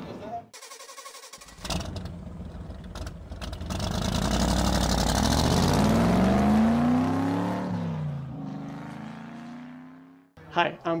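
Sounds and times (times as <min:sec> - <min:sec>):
vehicle engine accelerating: 0:01.6 - 0:10.4.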